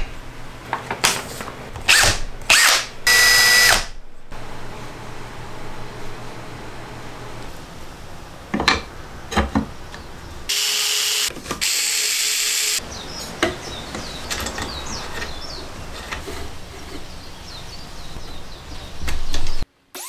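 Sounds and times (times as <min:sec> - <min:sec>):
electric screwdriver running: 0:01.9 - 0:03.9, 0:10.5 - 0:12.8.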